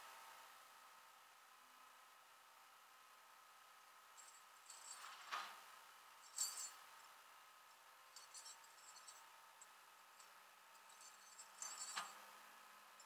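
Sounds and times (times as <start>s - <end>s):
faint clicks and clinks: 6.3s - 6.8s, 8.1s - 12.2s.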